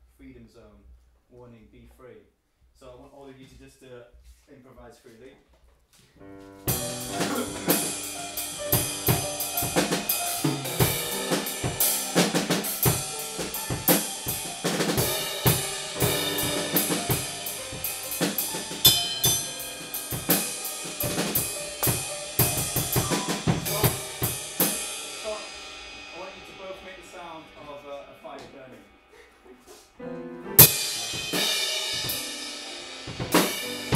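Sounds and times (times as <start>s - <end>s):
piano notes: 6.2s - 27.6s, 29.9s - 33.9s
drum kit played freely: 6.5s - 33.9s.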